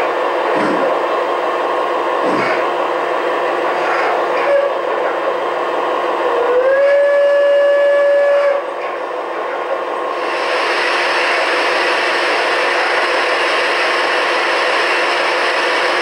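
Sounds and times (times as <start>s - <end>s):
model steam locomotive whistle: 4.4s - 4.9s, 6.3s - 8.7s
steady steam hiss: 10.1s - 16.0s.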